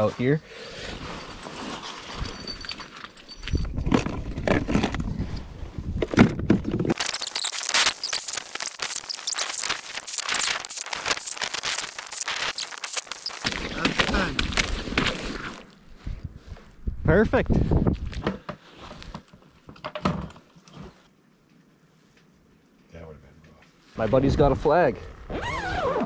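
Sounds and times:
ice auger crunching through ice: 0:06.9 - 0:15.6.

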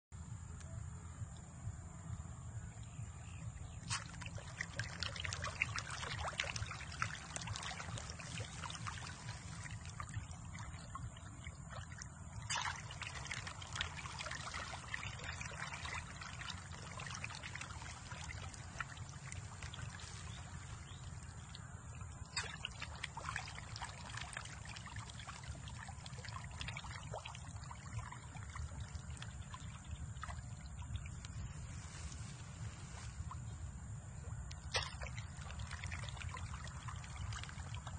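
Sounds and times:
steady low hum: 0:00.1 - 0:37.9
water splashing and trickling: 0:02.6 - 0:37.9
small pops on water: 0:22.3 - 0:22.8.

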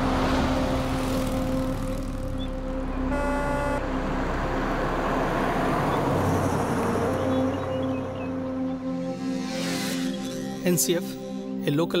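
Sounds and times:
vehicle passing close by: 0:00.0 - 0:10.6
car horn: 0:03.0 - 0:04.1.

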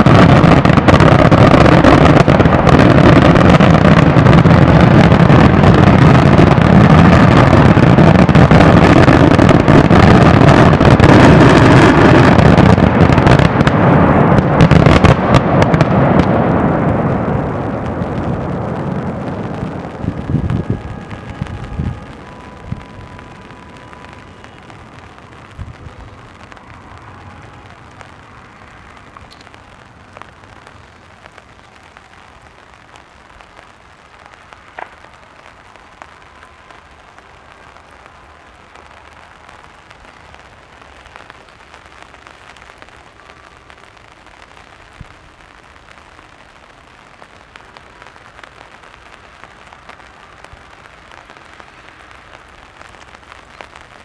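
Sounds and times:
fireworks popping: 0:00.0 - 0:54.0
steady noisy patter: 0:00.0 - 0:54.0.

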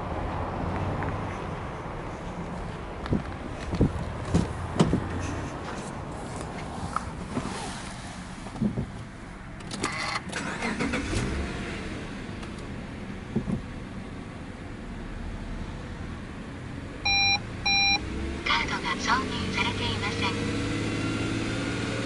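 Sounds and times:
car door clunks and clicks: 0:03.1 - 0:05.2, 0:13.3 - 0:13.7
engine starter cranking: 0:09.6 - 0:11.4.

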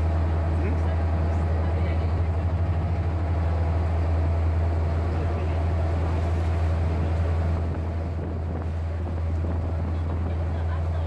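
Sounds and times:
boat engine droning: 0:00.0 - 0:11.0
water rushing past hull: 0:00.0 - 0:11.0
wind on microphone: 0:06.1 - 0:11.0.

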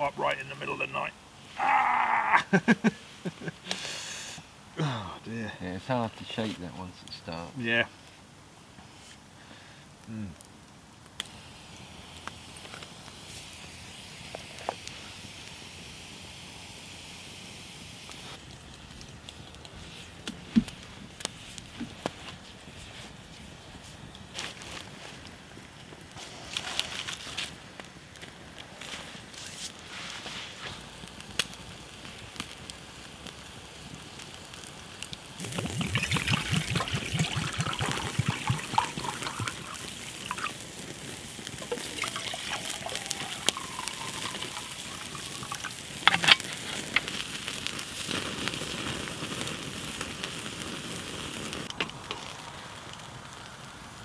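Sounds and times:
wood fire crackling: 0:00.0 - 0:54.0
water glugging from bottle: 0:35.4 - 0:40.6, 0:41.6 - 0:46.2
water pouring into metal mug: 0:35.4 - 0:40.6, 0:41.6 - 0:46.4.

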